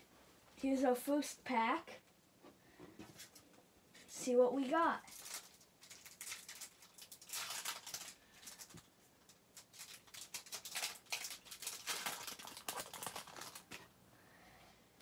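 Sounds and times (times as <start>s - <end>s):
foil wrapper crinkling and tearing: 5.0s - 13.9s.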